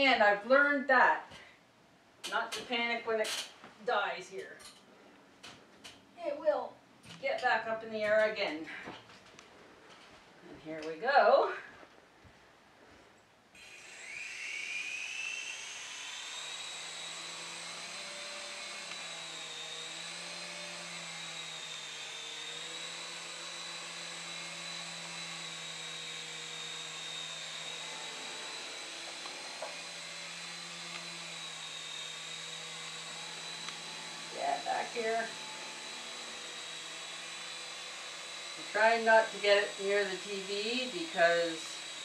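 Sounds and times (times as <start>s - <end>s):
electric motor high whine: 13.6s - 42.0s.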